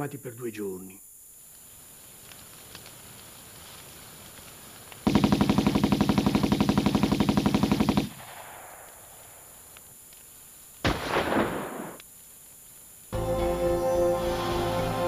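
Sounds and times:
machine gun firing bursts: 5.0s - 9.5s.

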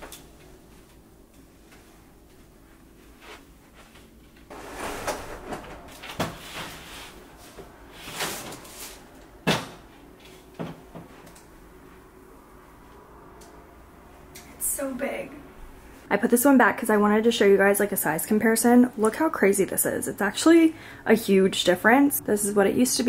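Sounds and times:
mirror scraping and shuffling: 1.5s - 13.0s.

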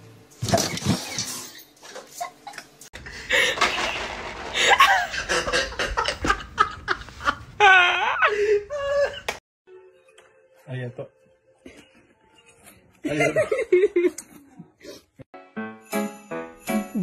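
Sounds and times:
people laughing: 13.0s - 14.7s.

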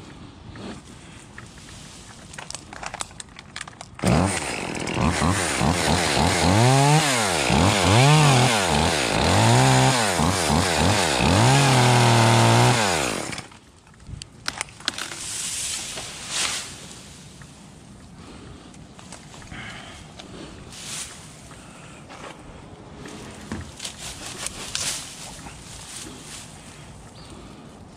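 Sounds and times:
chainsaw engine revving: 4.0s - 13.5s.

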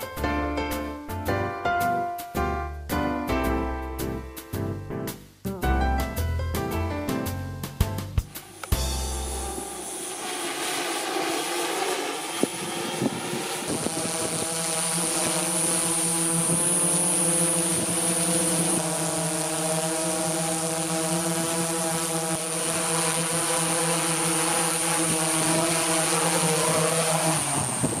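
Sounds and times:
drone propellers humming: 8.2s - 28.0s.

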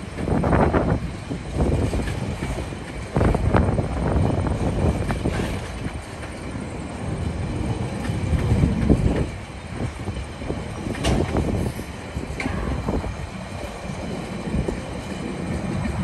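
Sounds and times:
train wheels rumbling on rails: 0.0s - 16.0s
wagons clanking and knocking: 10.6s - 13.0s.

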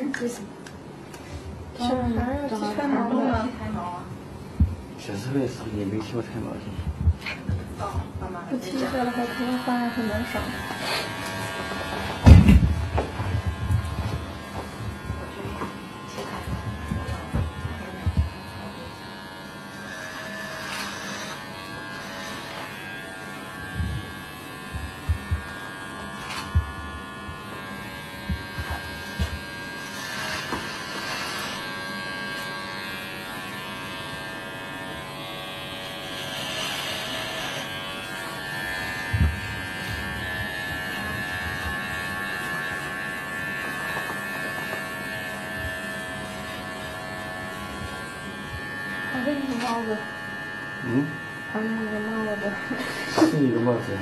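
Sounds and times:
electric hair clippers buzzing: 0.0s - 54.0s.

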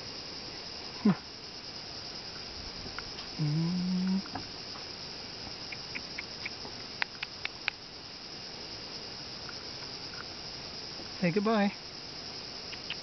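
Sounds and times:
high-pitched insect chorus: 0.0s - 13.0s
faint ticks: 5.6s - 7.8s, 9.4s - 10.3s, 12.6s - 13.0s
sharp clicks: 12.7s - 13.0s.

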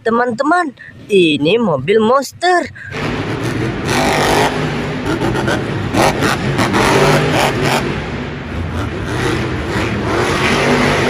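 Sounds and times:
monster truck engine revving: 2.8s - 11.0s.

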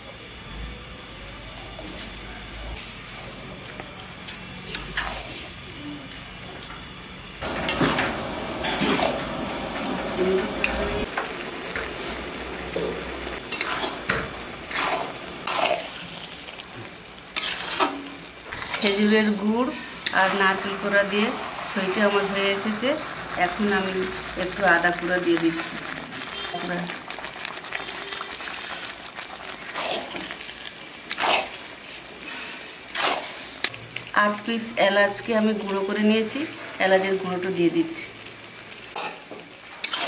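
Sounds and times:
sizzling: 0.0s - 40.0s
spoon stirring strokes: 7.6s - 26.4s, 27.1s - 34.1s, 39.8s - 40.0s
spatula scraping a pan: 12.8s - 16.1s, 17.4s - 19.0s, 39.8s - 40.0s.

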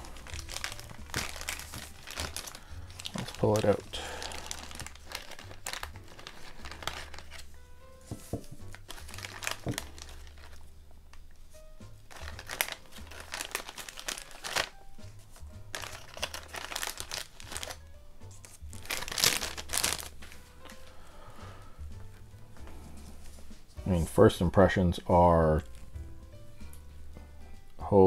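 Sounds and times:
plastic bag crinkling: 0.0s - 7.5s, 8.2s - 10.7s, 12.1s - 17.8s, 18.4s - 21.0s
background music: 0.0s - 28.0s.

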